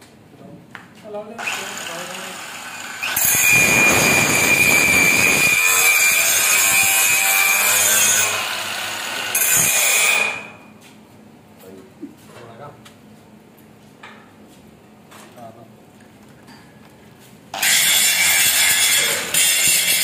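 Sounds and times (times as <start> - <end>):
angle grinder grinding steel: 1.4 - 10.6, 17.6 - 20.0.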